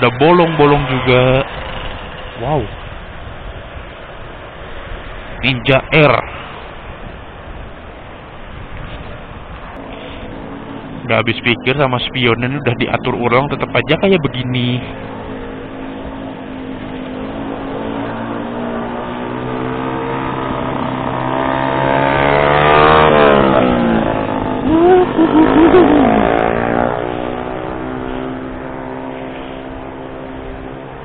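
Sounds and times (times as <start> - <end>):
engine revving: 0.0 - 2.8, 9.8 - 31.0
loud vehicle engine passing: 0.0 - 5.3, 9.7 - 31.0
engine hum: 0.0 - 31.0.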